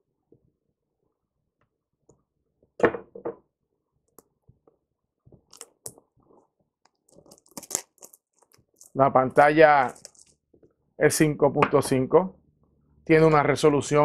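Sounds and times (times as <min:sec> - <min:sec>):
plastic shrink-wrap crackling: 0:06.9 - 0:09.0, 0:09.8 - 0:10.4.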